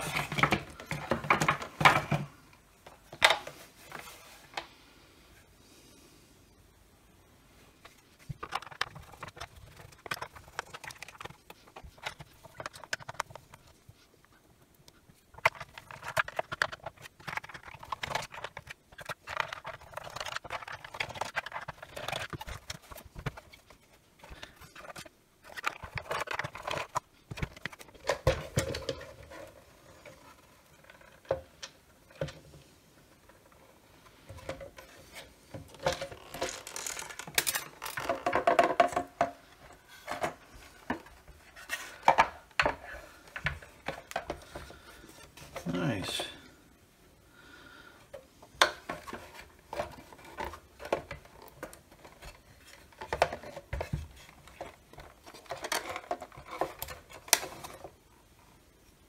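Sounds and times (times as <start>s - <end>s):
plastic casing clicks and scrapes: 8.2s - 13.8s, 14.9s - 32.4s, 34.3s - 45.6s, 48.1s - 58.0s.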